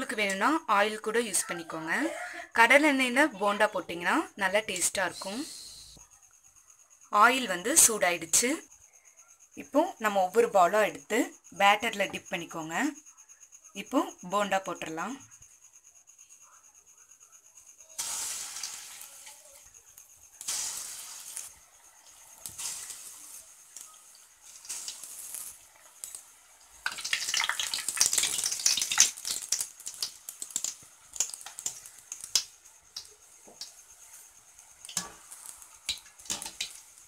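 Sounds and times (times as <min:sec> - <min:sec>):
deep-frying sizzle with crackles: 0:17.8 - 0:37.0.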